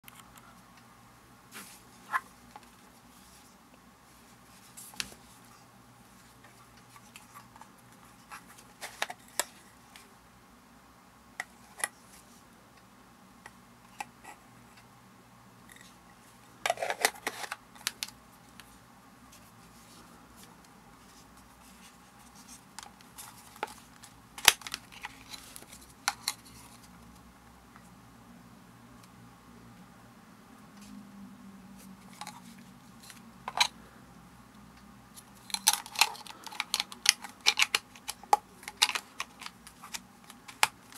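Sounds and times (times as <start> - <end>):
plastic parts scraping: 6.8 - 9.6, 16.6 - 18.1, 21.6 - 26.9, 32.0 - 33.8, 35.2 - 40.9.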